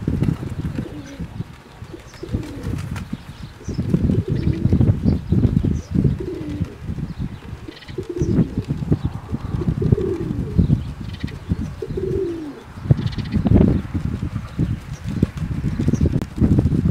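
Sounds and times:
pigeons cooing: 0.0 - 13.4
wind buffeting microphone: 0.0 - 16.9.

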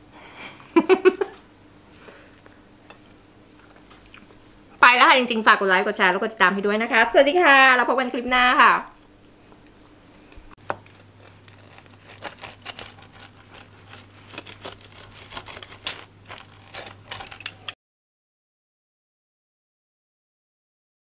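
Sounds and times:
pizza cutter crunching crust: 10.6 - 17.8.

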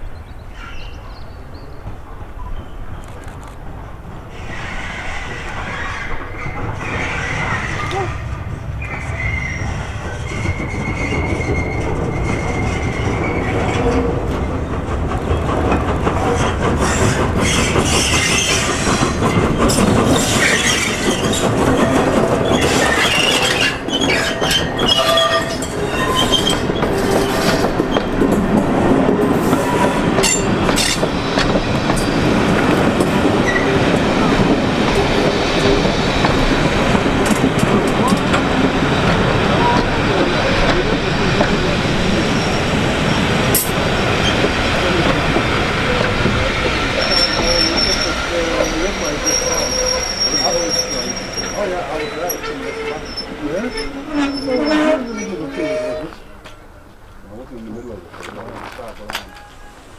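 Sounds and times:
steam locomotive working steam: 4.1 - 59.9
wheels clattering over rail joints: 5.4 - 59.7
high steady squeal: 45.9 - 56.3.

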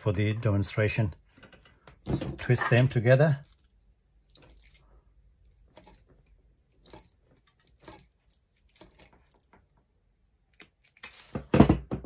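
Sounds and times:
pliers twisting copper wire: 3.4 - 9.6.

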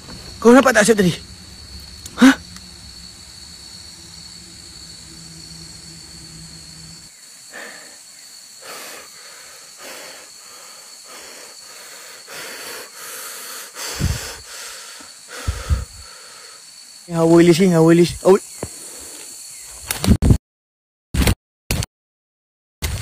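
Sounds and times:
low hum: 0.0 - 7.1
night insects whining: 0.0 - 20.1
heavy breathing: 2.1 - 2.6, 7.4 - 16.7, 18.7 - 19.4.

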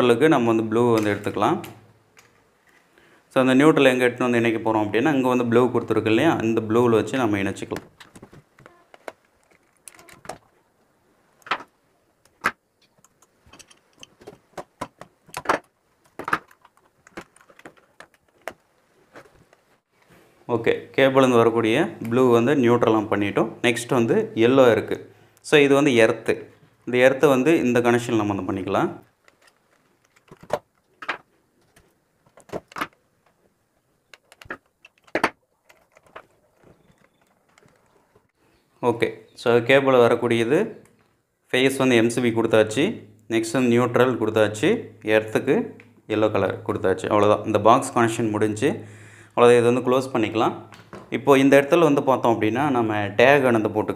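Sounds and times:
wires clicking on a plastic plate: 11.4 - 18.7, 34.1 - 38.2.

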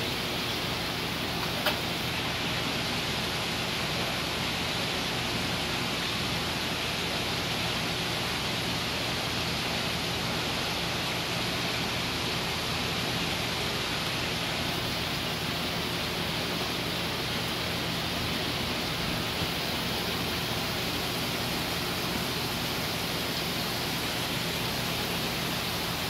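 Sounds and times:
low pump hum: 0.0 - 5.2, 6.8 - 26.0
water rushing: 14.4 - 26.0.

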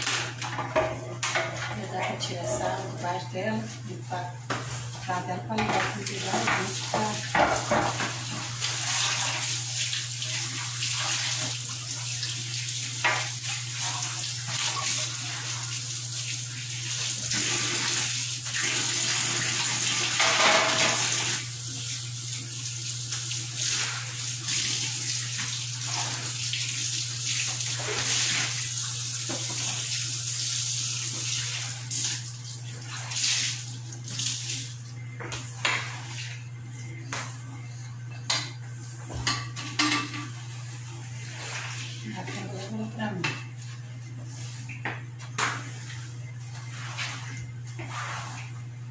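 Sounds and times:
tap water running into sink: 5.5 - 35.9.

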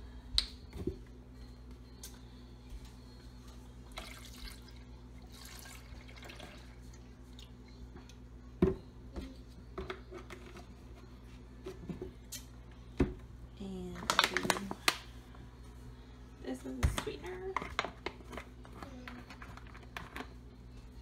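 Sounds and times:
milk pouring and splashing: 3.9 - 7.5.

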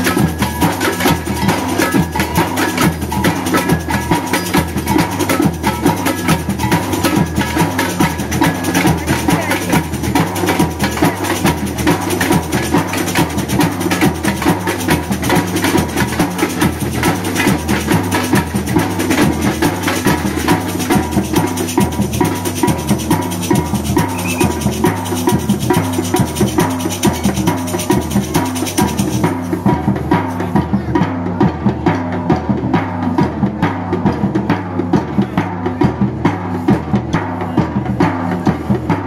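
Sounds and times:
bass drum steady beat: 0.0 - 30.9
fast stick strikes on small drums: 0.0 - 39.0.

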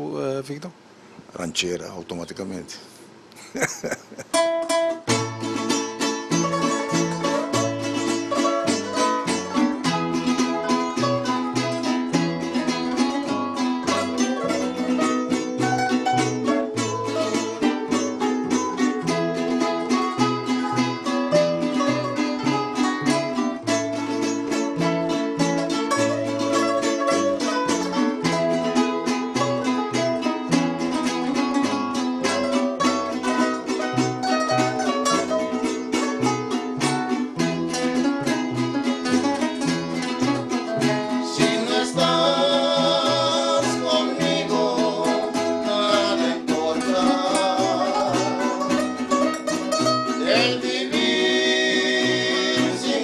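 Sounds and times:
strummed guitars: 3.4 - 53.0
plucked bass notes: 4.2 - 53.0
voices singing: 12.1 - 20.0, 40.7 - 53.0.

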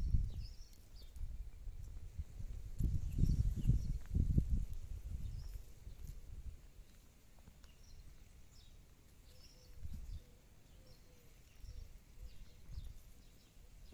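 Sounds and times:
wind gusts on microphone: 0.0 - 6.7, 9.7 - 10.3.

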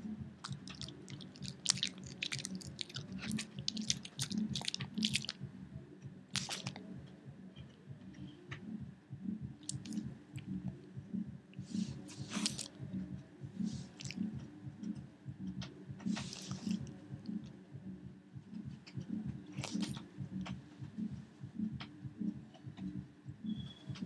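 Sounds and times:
dog chomping: 0.4 - 5.4.

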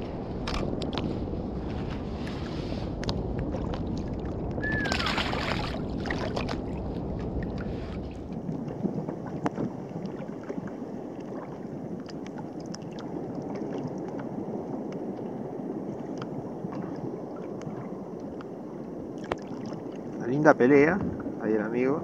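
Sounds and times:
waves lapping against kayak hull: 0.0 - 22.0
light ticks and splashes: 3.0 - 15.3, 16.0 - 20.3.

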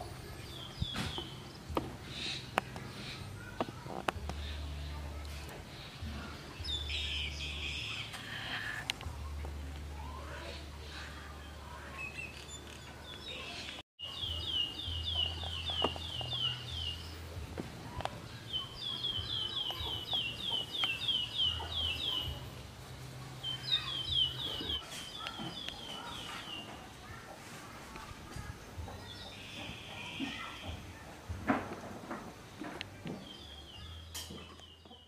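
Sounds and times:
bird chirping: 11.7 - 17.4, 18.0 - 22.5, 23.4 - 26.8.

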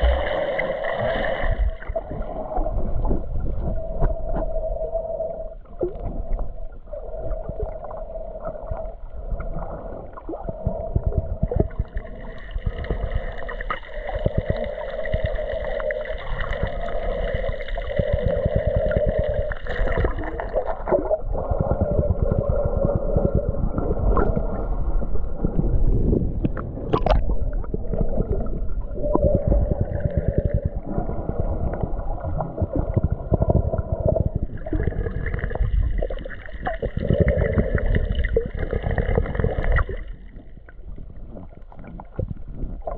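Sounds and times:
steady hums: 0.0 - 41.6
underwater crackling: 7.4 - 42.9.

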